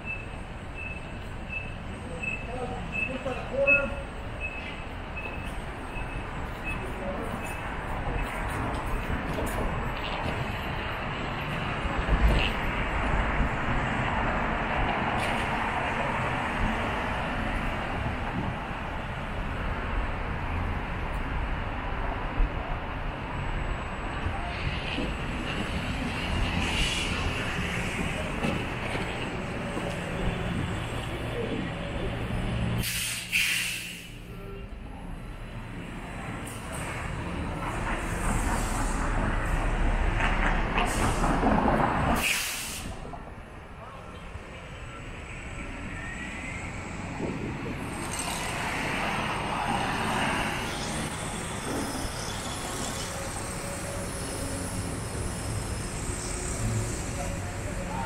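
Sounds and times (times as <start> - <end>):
traffic hum: 0.0 - 58.0
loud hiss: 32.8 - 34.2, 42.2 - 43.0.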